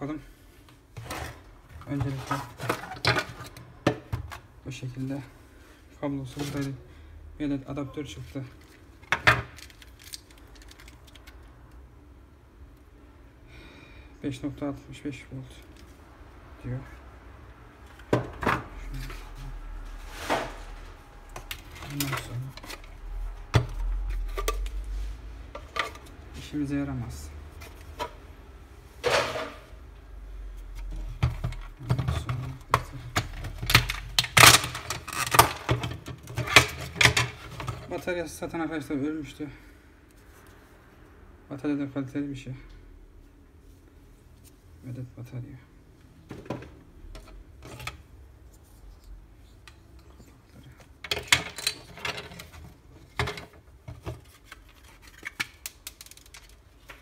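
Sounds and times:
plastic parts clicking and scraping: 1.0 - 4.4, 8.3 - 11.8, 21.3 - 24.9, 25.6 - 26.2, 30.6 - 38.1, 48.9 - 57.0.

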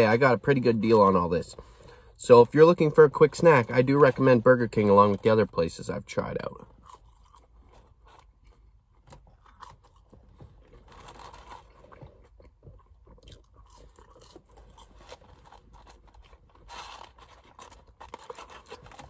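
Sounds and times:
person chewing food: 6.6 - 19.0.

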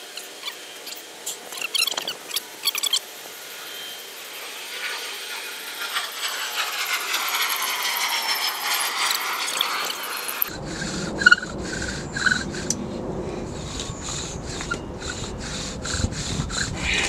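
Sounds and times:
faint high squeal: 3.6 - 4.2, 10.8 - 17.0.

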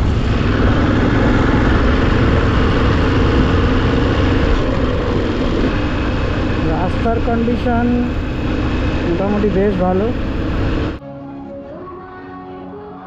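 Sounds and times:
wind noise: 0.0 - 6.7
motorcycle engine hum: 0.0 - 11.0
road noise: 0.0 - 11.0.

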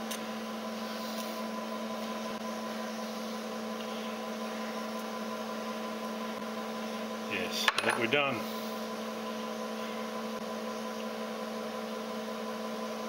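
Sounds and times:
milling machine hum: 0.0 - 13.0.

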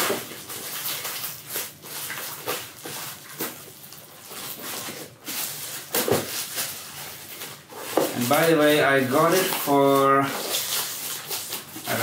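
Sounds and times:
plastic bag rustling and crinkling: 0.0 - 12.0.

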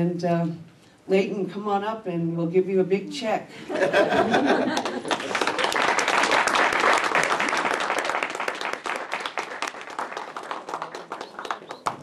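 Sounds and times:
audience applauding: 4.5 - 12.0.

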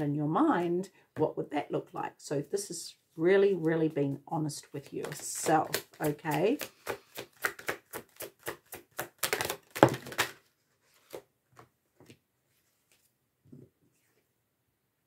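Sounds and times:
cards being shuffled: 5.0 - 13.1.

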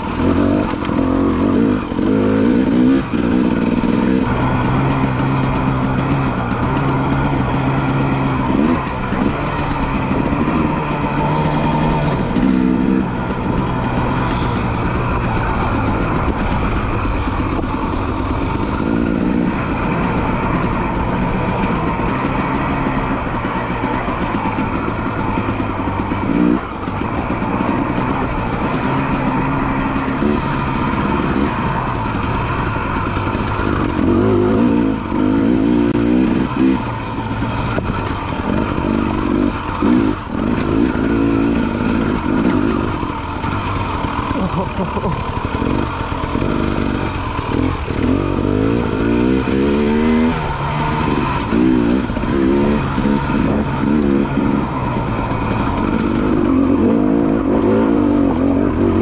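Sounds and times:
dirt bike engine running: 0.0 - 59.0.

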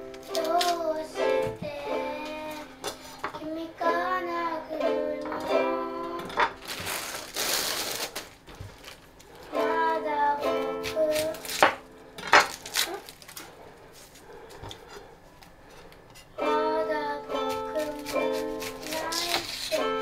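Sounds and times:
ukulele chords strummed: 0.0 - 3.1, 3.8 - 6.6, 9.5 - 12.2, 16.4 - 18.6, 19.8 - 20.0
plastic bag rustling: 6.3 - 9.6, 11.0 - 15.8.

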